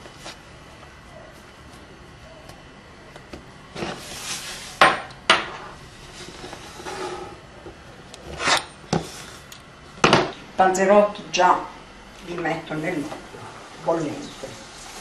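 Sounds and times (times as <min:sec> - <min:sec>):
dough scraping on table: 0:03.7 - 0:04.8, 0:05.6 - 0:07.4, 0:08.2 - 0:09.4.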